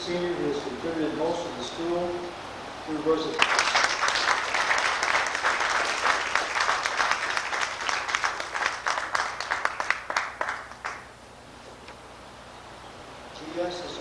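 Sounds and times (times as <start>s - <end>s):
audience applauding: 3.4s - 11.1s.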